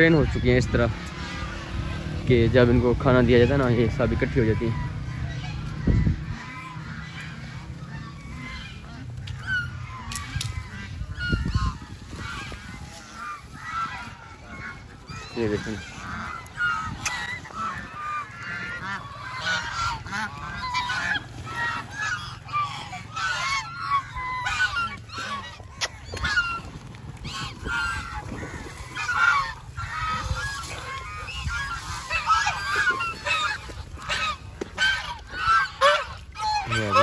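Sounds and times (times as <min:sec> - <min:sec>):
ducks quacking: 0:00.0 - 0:37.0.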